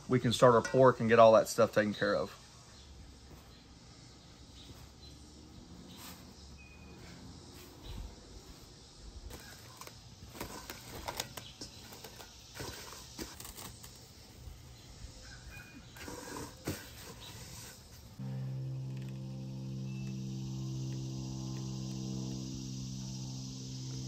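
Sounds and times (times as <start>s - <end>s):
plastic cling wrap crinkling: 9.4s - 14.0s.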